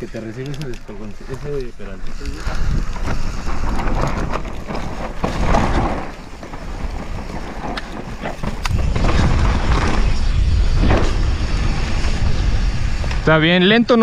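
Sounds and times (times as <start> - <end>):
bike knocks and rattles: 0.0 - 12.4
bike tyres on loose dirt: 0.0 - 14.0
wind buffeting microphone: 0.0 - 14.0.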